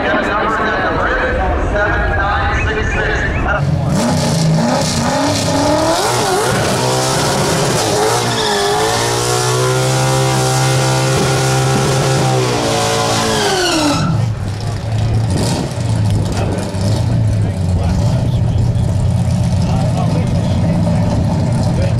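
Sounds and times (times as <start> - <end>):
car engine revving: 2.2 - 21.9
tyres squealing: 8.0 - 9.3, 13.0 - 14.3.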